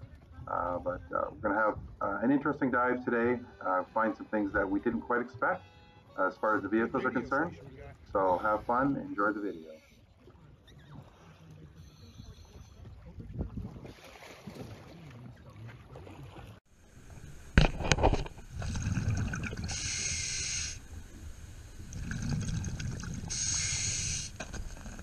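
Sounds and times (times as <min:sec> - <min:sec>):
water surface noise: 0:06.6 - 0:25.0
underwater bubbles rumbling: 0:12.4 - 0:23.7
diver breathing through regulator: 0:18.5 - 0:25.0.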